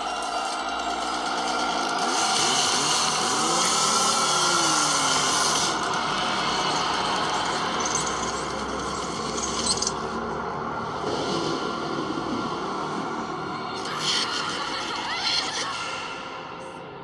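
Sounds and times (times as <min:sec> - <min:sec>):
chainsaw revving: 0:00.2 - 0:09.6.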